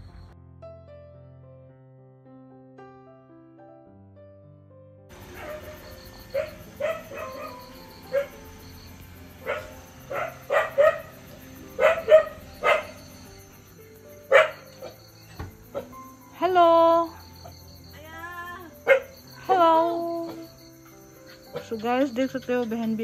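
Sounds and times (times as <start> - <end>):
soft background music: 0.0 - 23.0
dog barking: 5.1 - 8.6, 9.4 - 13.4, 14.3 - 15.1, 15.7 - 16.0, 18.8 - 19.3.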